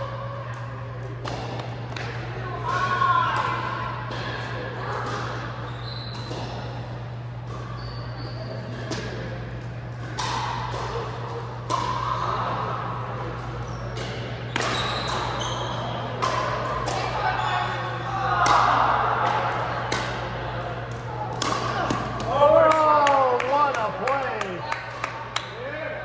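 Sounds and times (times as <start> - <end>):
short high squeaks: 7.6 - 8.6.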